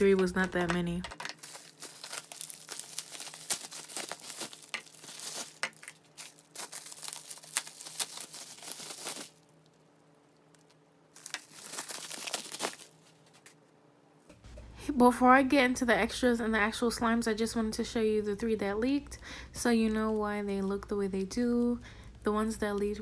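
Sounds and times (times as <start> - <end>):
bubble wrap crinkling: 0.0 - 13.6.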